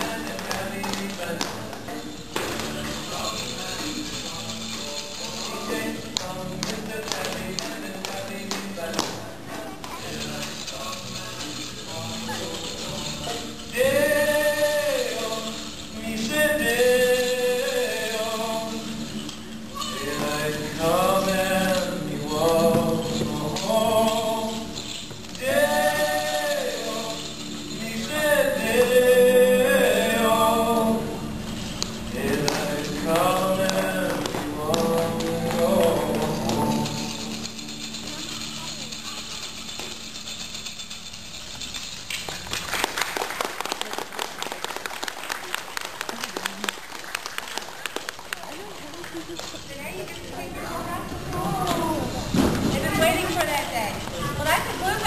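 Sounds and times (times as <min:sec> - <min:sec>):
low musical accompaniment: 0:00.0 - 0:42.2
audience applause: 0:42.3 - 0:49.5.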